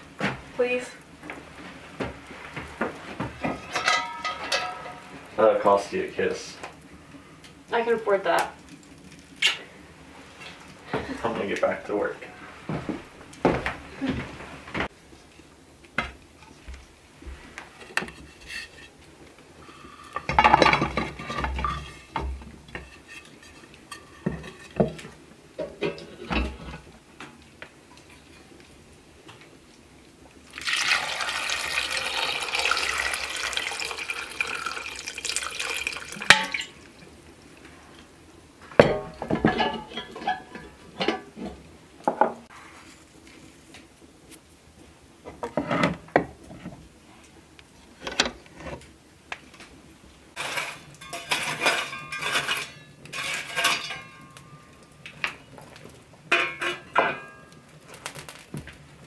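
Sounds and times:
knocks and clatter of pail: 0:20.2 - 0:22.9, 0:38.8 - 0:42.4
water pouring into metal pail: 0:30.5 - 0:36.8.

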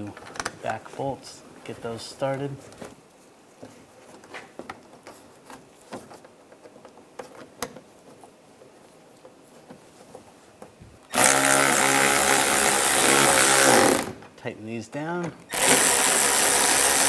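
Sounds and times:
bolts clicking and rustling: 0:00.0 - 0:17.0
cordless electric ratchet running: 0:11.1 - 0:14.2, 0:15.5 - 0:17.0.

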